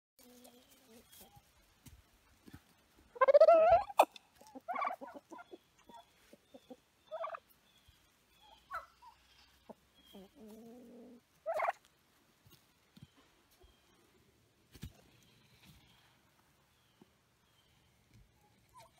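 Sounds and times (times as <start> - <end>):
turkeys gobbling and calling: 0.2 - 12.6, 18.1 - 18.9.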